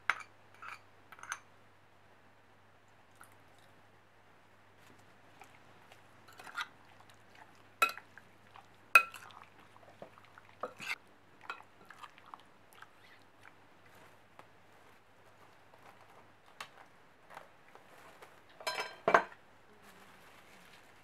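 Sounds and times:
fork stirring wet chicken: 4.8 - 14.1
fork clinking against glass bowl: 18.6 - 19.3.

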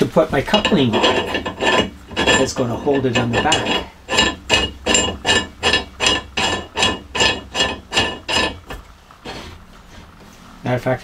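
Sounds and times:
metal nut clinking on threaded rod: 0.6 - 8.8.

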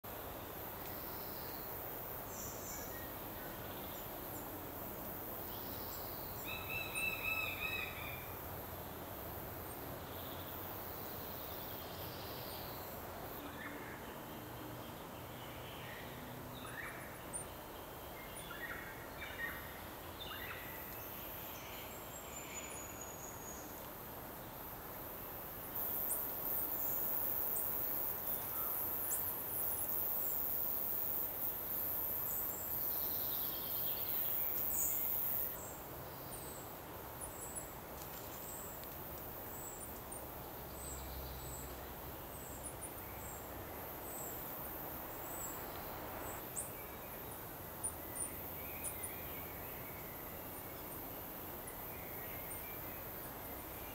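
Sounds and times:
high hiss: 19.6 - 53.9.

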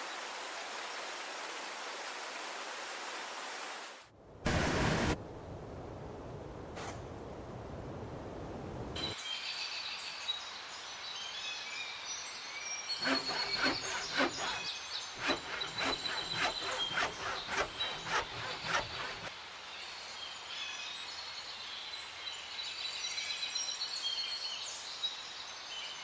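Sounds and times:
hand saw cutting bamboo: 13.0 - 19.3.

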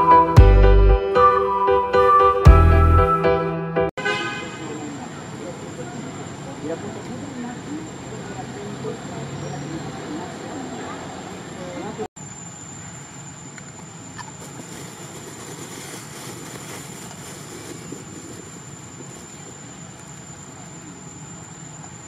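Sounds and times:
even hiss: 14.3 - 19.6.

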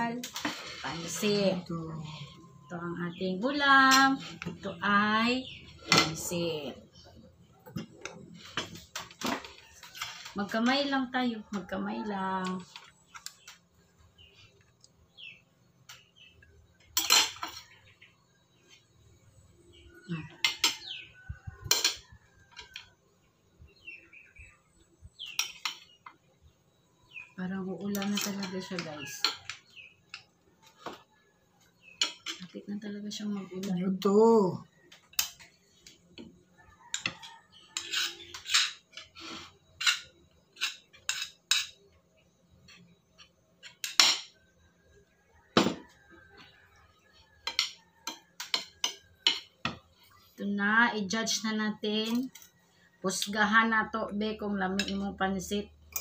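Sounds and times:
cutlery clinking on plates: 16.9 - 17.8, 21.6 - 22.9, 25.3 - 26.0, 32.0 - 32.5, 36.9 - 41.8, 47.4 - 49.9.

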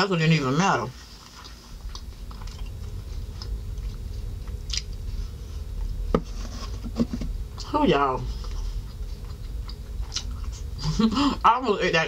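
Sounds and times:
low rumble: 0.0 - 12.0
person chewing food: 1.0 - 7.3, 8.3 - 11.0.

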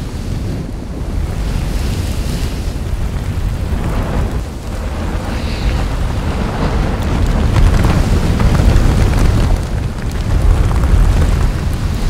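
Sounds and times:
rumbling roar of lava fountain: 0.0 - 12.0
spattering lava pops: 3.0 - 12.0.

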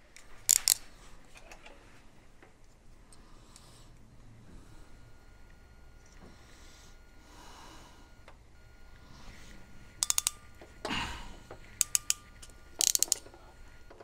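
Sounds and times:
ratchet tool clicking: 0.4 - 0.9, 10.0 - 10.6, 11.8 - 13.5.

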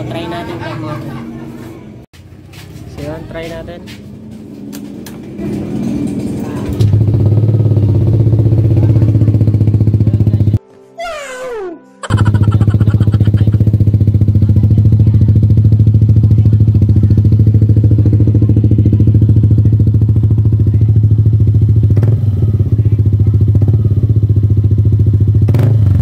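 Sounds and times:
scooter engine idling loudly: 5.4 - 10.6, 12.1 - 26.0.

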